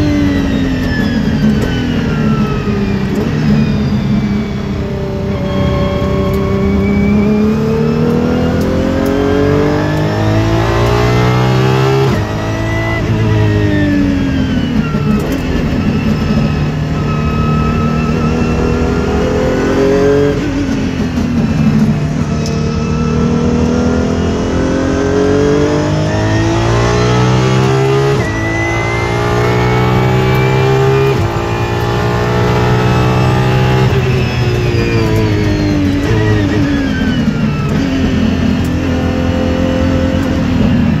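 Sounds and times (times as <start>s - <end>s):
engine heard from inside car: 0.0s - 26.0s.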